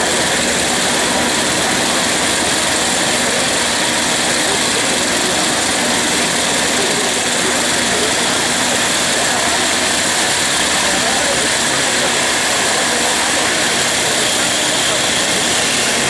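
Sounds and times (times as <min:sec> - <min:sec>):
engine droning steadily: 0:00.0 - 0:16.0.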